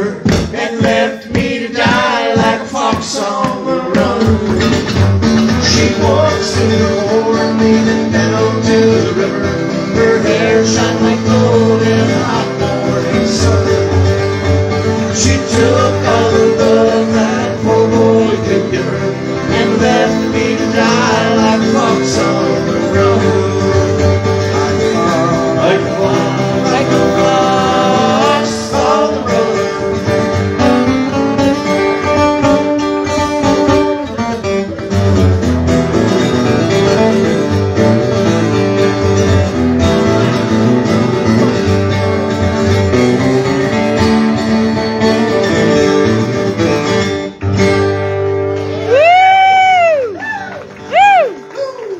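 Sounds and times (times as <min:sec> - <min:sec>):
men singing into microphones: 0:00.0 - 0:04.9, 0:05.6 - 0:14.2, 0:15.0 - 0:30.4
acoustic guitars strummed: 0:00.0 - 0:51.1.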